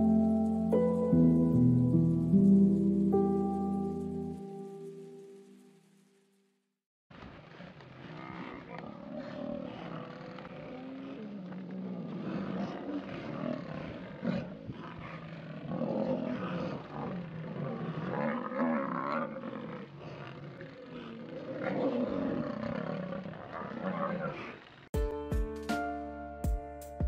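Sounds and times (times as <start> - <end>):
lions calling: 7.4 - 24.7.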